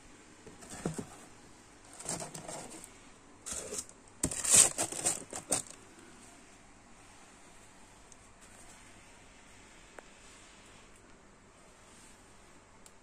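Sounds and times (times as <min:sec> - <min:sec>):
paper wrapping crinkling: 0:03.5 - 0:05.8.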